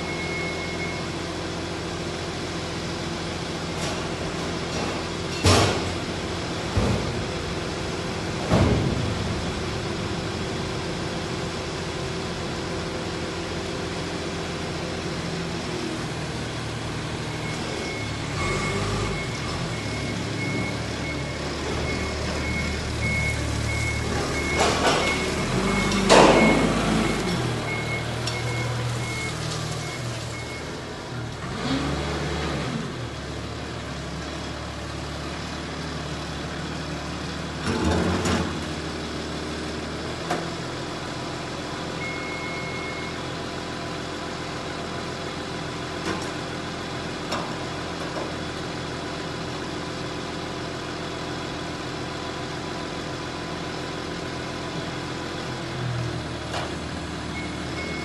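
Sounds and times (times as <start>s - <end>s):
forklift engine running: 0.0s - 58.0s
reversing beeper: 17.4s - 30.7s.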